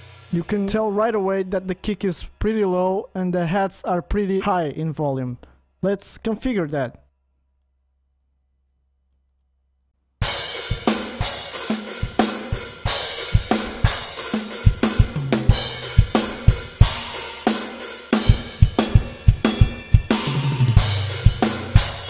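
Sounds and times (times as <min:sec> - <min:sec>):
acoustic drum kit playing: 0:00.0 - 0:01.1, 0:10.2 - 0:22.0
tom hits: 0:13.4 - 0:17.2.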